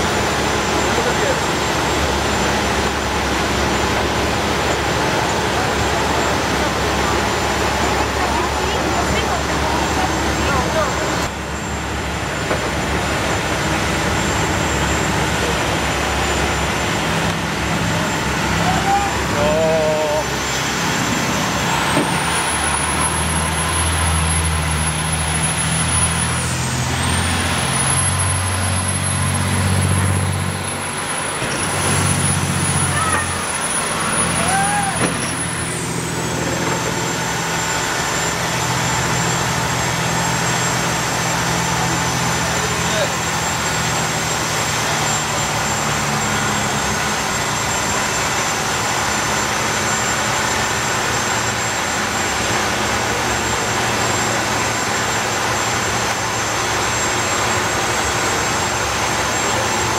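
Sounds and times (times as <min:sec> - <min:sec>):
boat engines droning: 0:00.0 - 0:59.9.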